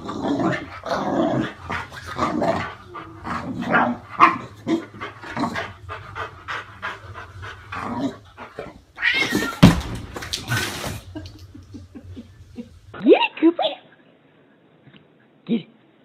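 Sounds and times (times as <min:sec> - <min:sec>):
animals growling and yowling: 0:00.0 - 0:09.8
cat hissing: 0:08.4 - 0:09.8.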